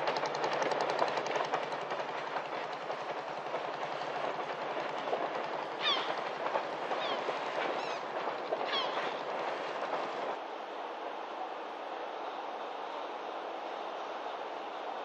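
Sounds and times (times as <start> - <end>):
wheels clattering on rails: 0.0 - 10.4
train rumbling over bridge: 0.0 - 15.0.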